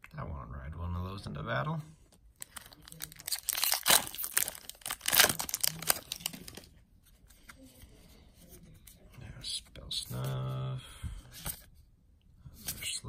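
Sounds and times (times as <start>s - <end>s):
foil wrapper crinkling and tearing: 2.4s - 6.7s.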